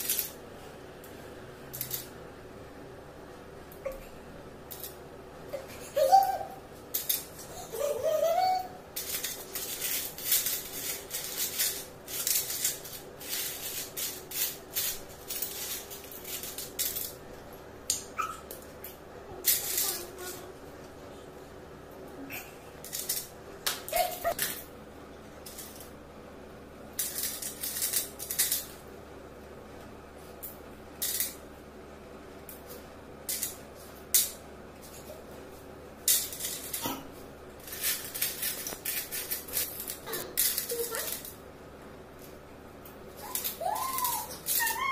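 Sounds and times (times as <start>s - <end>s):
coins clinking and rattling: 0.0s - 0.4s, 9.0s - 17.2s, 22.8s - 23.3s, 27.0s - 28.7s, 36.1s - 36.8s, 37.6s - 41.4s, 43.3s - 44.9s
coins clinking: 37.6s - 41.3s.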